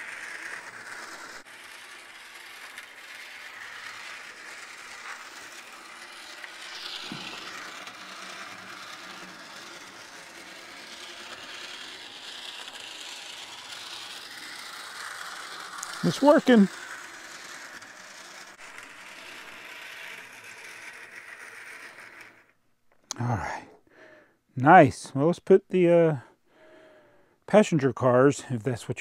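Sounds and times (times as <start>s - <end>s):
model train whirring and rattling: 0.0s - 22.6s.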